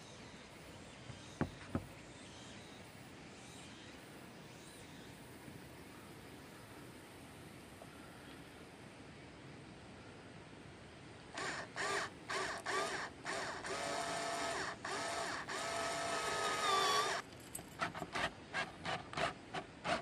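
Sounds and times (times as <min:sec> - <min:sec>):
cordless drill whining: 0:11.4 - 0:17.2.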